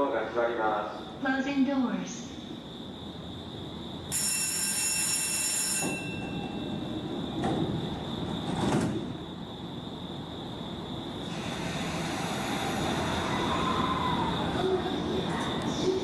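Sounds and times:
high door signal tone: 4.1s - 8.0s
train doors thumping: 5.6s - 9.5s.

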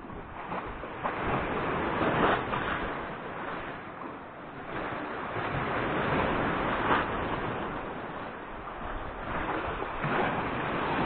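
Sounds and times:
sea surf washing: 5.0s - 11.0s.

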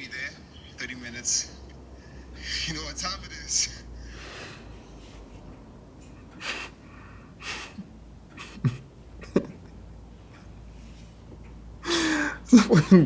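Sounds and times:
man breathing: 1.9s - 2.6s, 3.9s - 7.8s, 11.8s - 12.5s
man's breathy half-laughs: 7.4s - 9.6s.

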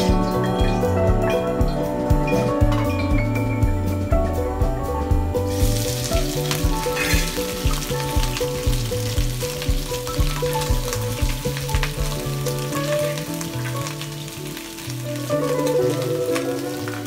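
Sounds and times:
background music with steady beat: 0.0s - 14.0s
meat sizzling in a wok: 5.4s - 17.0s.

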